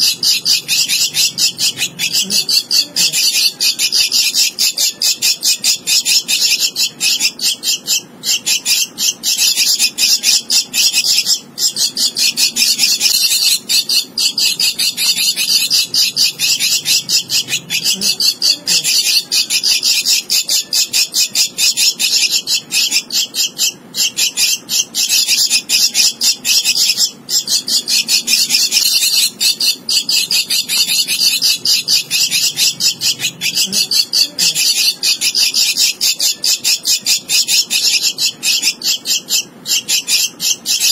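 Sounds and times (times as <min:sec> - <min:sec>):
bird nestling begging calls: 0:00.0 - 0:40.9.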